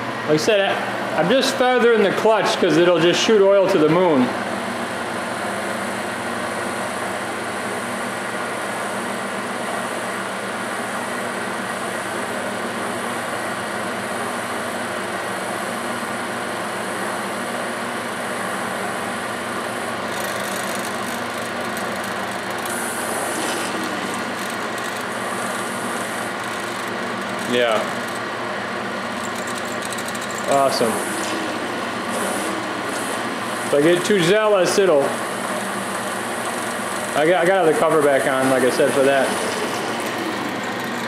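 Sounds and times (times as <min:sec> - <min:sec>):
lathe gears whining: 0:19.6 - 0:41.0.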